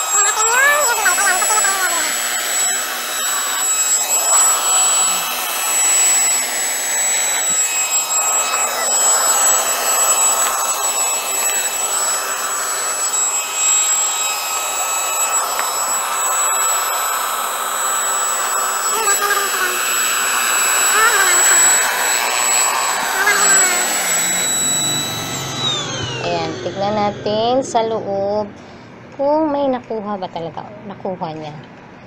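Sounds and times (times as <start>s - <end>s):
vacuum cleaner motor whine: 0.0s - 29.3s.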